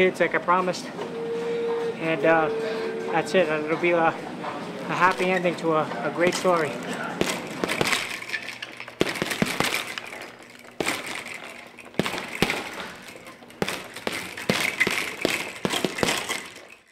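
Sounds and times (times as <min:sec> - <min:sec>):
gloves hitting punching bag: 0:06.2 - 0:16.9.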